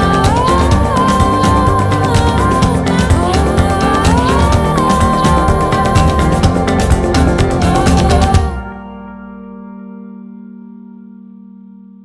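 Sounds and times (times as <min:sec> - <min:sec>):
background music with steady beat: 0:00.0 - 0:09.5.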